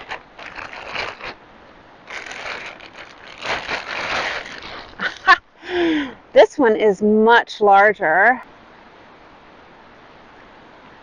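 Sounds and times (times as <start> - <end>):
plastic bag crinkling: 0.0 - 1.4, 2.0 - 5.4.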